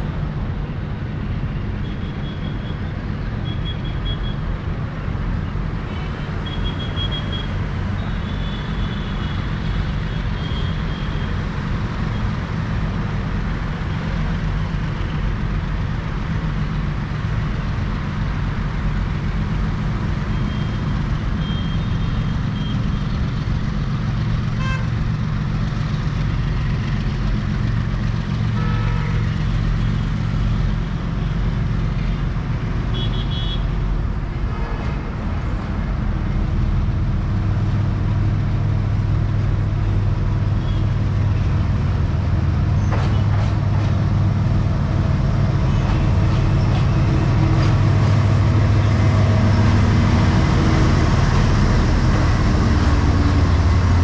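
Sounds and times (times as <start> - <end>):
diesel locomotive engine drone: 0.0 - 54.0.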